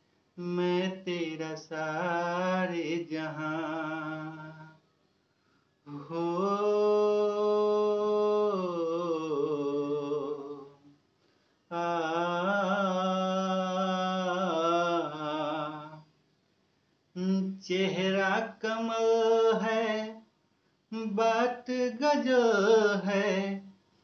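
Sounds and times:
man singing long notes: 5.9s - 10.8s.

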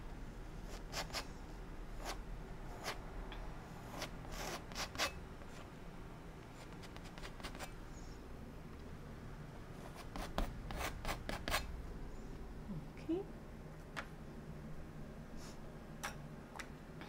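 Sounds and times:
palette knife scraping canvas: 3.8s - 5.2s.

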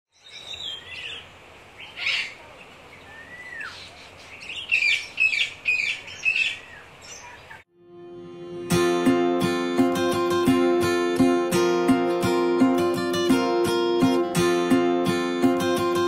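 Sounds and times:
birds chirping: 0.1s - 7.7s.

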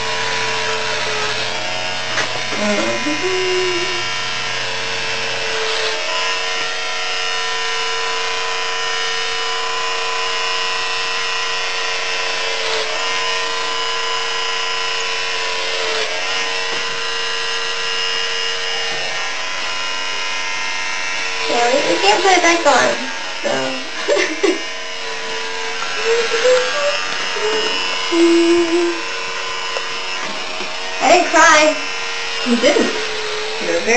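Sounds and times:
electric hair clippers buzzing: 0.0s - 33.9s.

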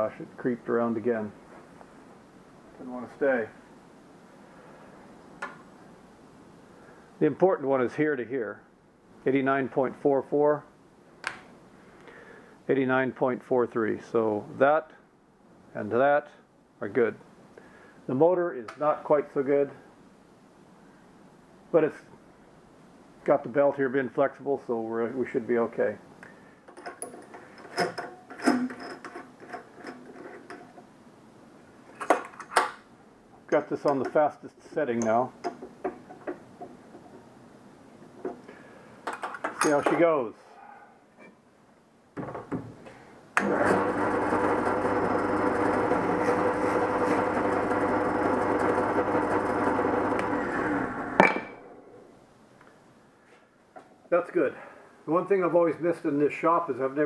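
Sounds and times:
light metallic clicks and knocks: 26.7s - 30.8s, 33.4s - 34.2s, 35.0s - 37.3s
drill press drilling wood: 43.4s - 51.2s.

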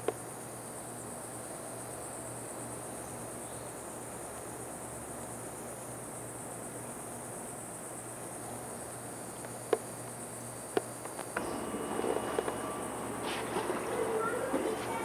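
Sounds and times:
insects buzzing: 0.0s - 15.0s
busy background noise: 10.9s - 15.0s.

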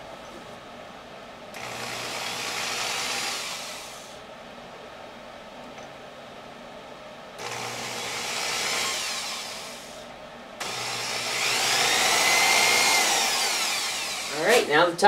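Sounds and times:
electric drill whine: 1.5s - 4.1s, 7.4s - 10.0s, 10.6s - 14.7s.

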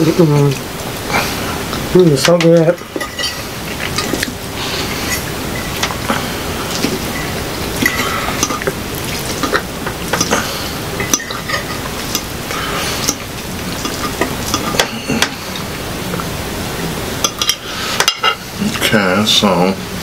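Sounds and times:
steady noisy background: 0.0s - 20.0s
forks clinking and scraping plates: 2.2s - 6.0s, 6.7s - 12.3s, 13.0s - 15.6s, 17.2s - 18.4s
wet chewing: 2.9s - 16.4s.

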